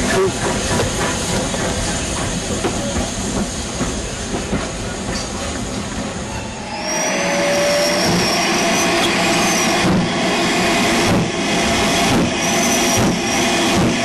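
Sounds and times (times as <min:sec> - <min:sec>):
train wheels rumbling on track: 0:00.0 - 0:14.0
high wheel squeals: 0:06.3 - 0:09.9, 0:11.8 - 0:13.6.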